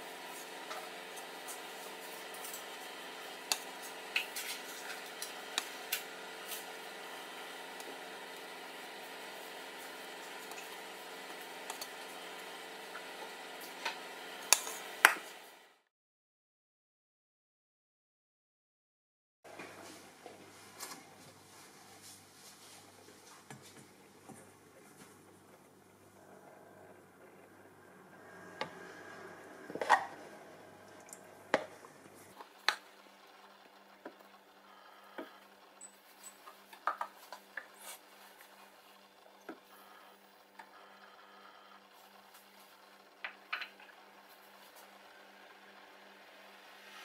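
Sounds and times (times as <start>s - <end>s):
steady hum: 19.5s - 47.0s.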